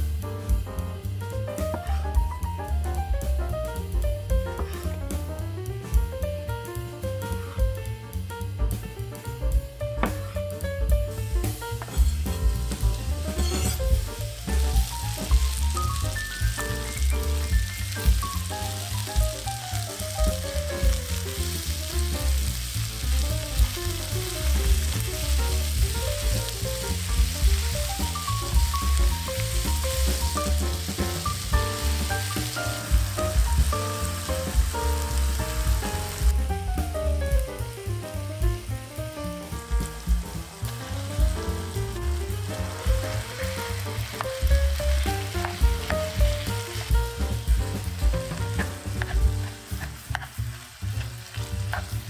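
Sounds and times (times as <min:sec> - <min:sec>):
vegetables sizzling in oil: 0:00.0 - 0:05.4, 0:09.5 - 0:52.0
background music with deep bass: 0:00.0 - 0:52.0
wooden spatula stirring: 0:44.9 - 0:52.0.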